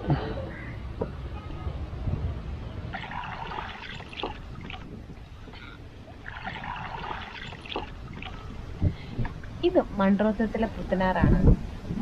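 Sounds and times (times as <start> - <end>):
water dripping: 2.9 - 8.6
water splashing around canoe: 3.0 - 8.7.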